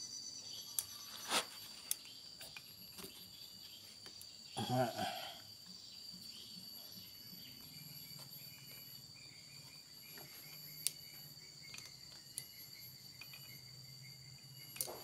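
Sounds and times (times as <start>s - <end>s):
high-pitched cricket trill: 0.0s - 15.0s.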